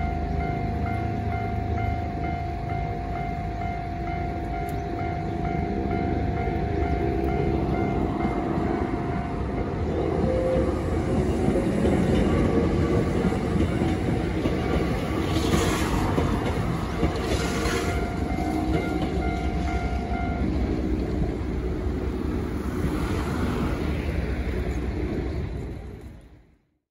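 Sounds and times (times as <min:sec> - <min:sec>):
level crossing alarm ringing: 0:00.0 - 0:15.2, 0:16.0 - 0:20.8
train wheels clacking on rails: 0:00.0 - 0:26.2.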